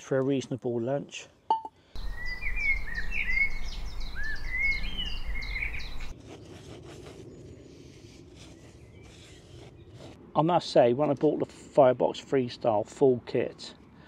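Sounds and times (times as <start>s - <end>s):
songbirds chirping and warbling: 1.2s - 10.2s.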